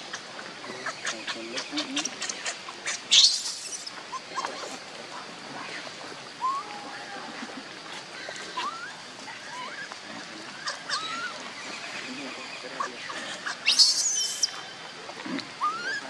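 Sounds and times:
baby monkey crying: 1.8s - 4.4s, 8.6s - 9.9s, 10.6s - 11.4s, 12.9s - 14.6s, 15.6s - 16.0s.

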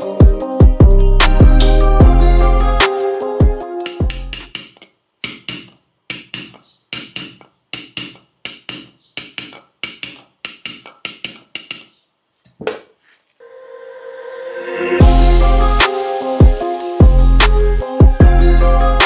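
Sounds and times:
background music: 0.0s - 4.6s, 13.4s - 19.0s
hammer tapping on steel shaft: 3.8s - 12.0s.

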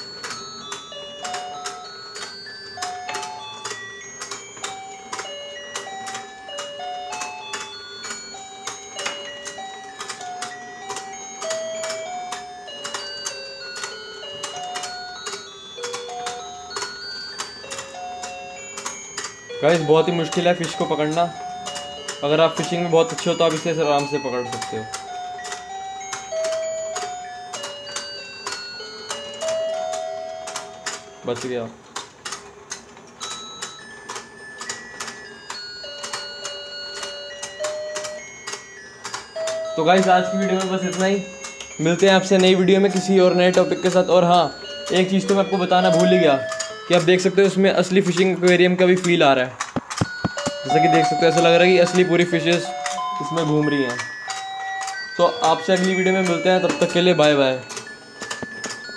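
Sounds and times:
tinny electronic beeping melody: 0.0s - 31.3s, 33.2s - 49.2s, 50.0s - 58.9s
toy mechanism clicking: 0.0s - 58.9s
mechanism clicking: 24.5s - 44.1s, 44.9s - 50.6s
tinny electronic tune: 35.3s - 49.3s, 50.0s - 58.9s.

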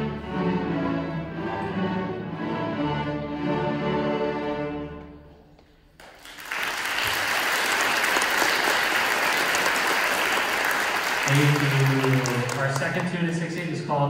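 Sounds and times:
string orchestra playing: 0.0s - 5.5s, 11.2s - 14.0s
audience applause: 6.0s - 13.9s.

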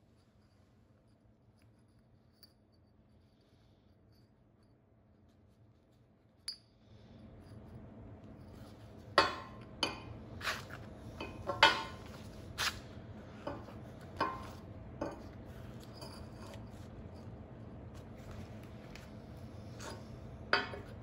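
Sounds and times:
steel tubes clinking and knocking: 11.2s - 12.0s, 14.2s - 15.3s.

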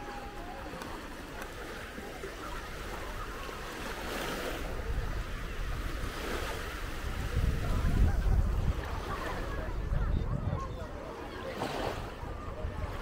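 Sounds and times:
faint distant voices: 0.0s - 13.0s
small waves lapping on sand: 0.0s - 13.0s
wind buffeting microphone: 4.3s - 13.0s.

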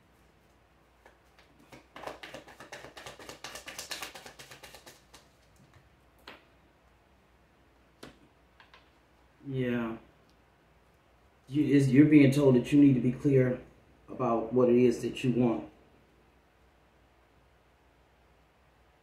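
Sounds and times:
cards being shuffled: 1.0s - 5.9s.

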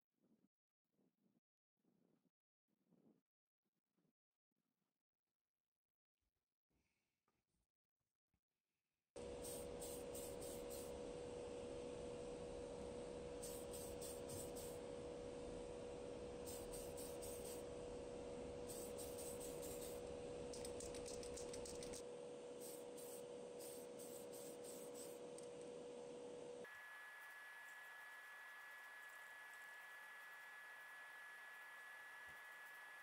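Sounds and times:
extractor fan hum: 9.2s - 33.0s
spray can hissing: 9.4s - 10.9s, 13.4s - 14.8s, 16.5s - 17.6s, 18.7s - 22.0s, 22.6s - 25.2s.

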